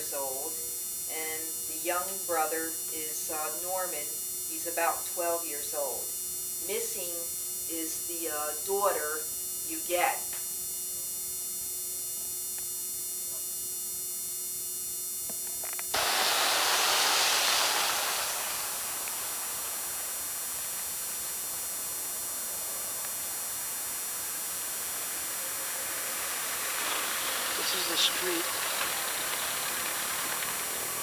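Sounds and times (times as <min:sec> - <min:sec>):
electrical mains hum with hiss: 0:00.0 - 0:31.0
outdoor street ambience rushing: 0:16.0 - 0:31.0.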